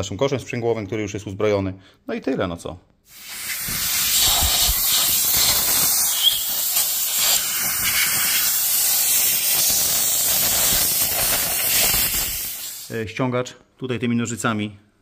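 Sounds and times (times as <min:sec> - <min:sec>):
loud steady hiss: 0:03.1 - 0:13.2.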